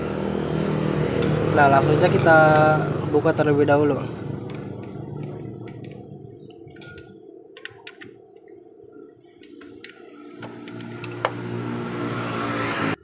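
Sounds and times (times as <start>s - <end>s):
metallic clicks of hand tools: 4.4s - 8.1s, 9.4s - 11.4s.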